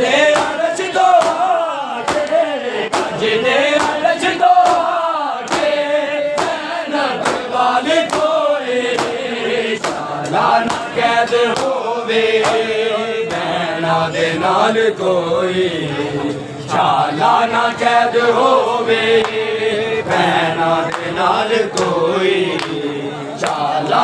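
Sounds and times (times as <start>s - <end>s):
men chanting: 0.0s - 24.0s
chest slapping in unison: 0.3s - 3.2s, 3.8s - 9.2s.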